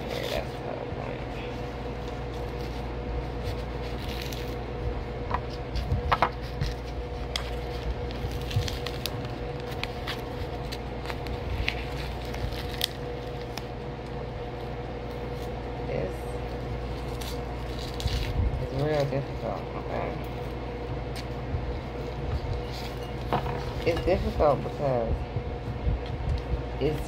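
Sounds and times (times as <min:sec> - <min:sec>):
steady low hum: 0:00.0 - 0:27.0
paper package crinkling and tearing: 0:01.4 - 0:04.7, 0:05.4 - 0:15.6, 0:16.4 - 0:21.3.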